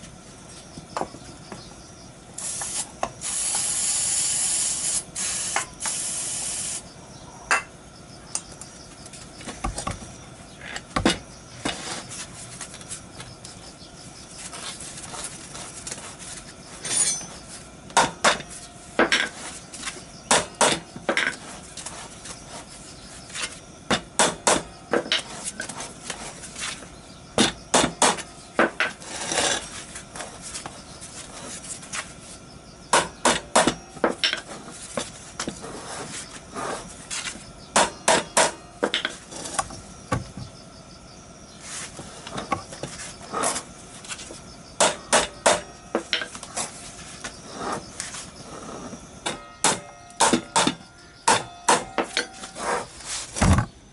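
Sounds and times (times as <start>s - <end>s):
aerosol spray hissing: 2.4s - 6.8s.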